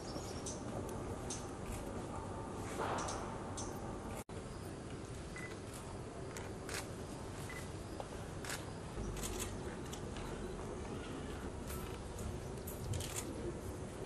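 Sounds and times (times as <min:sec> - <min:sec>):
camera shutter clicks: 0:12.9 - 0:13.3.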